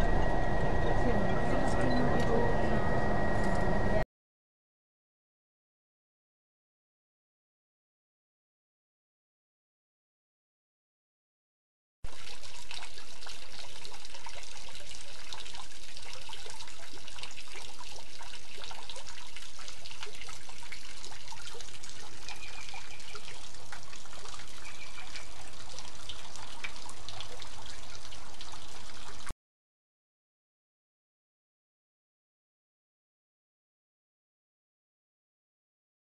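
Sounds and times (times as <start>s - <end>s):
fountain water splashing: 12.1s - 29.3s.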